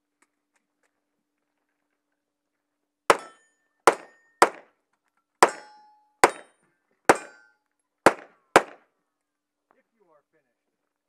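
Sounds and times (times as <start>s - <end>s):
steel targets ringing: 3.1s - 4.6s, 5.4s - 7.6s
pistol shots: 3.1s - 4.7s, 5.4s - 6.5s, 7.1s - 7.4s, 8.1s - 8.8s.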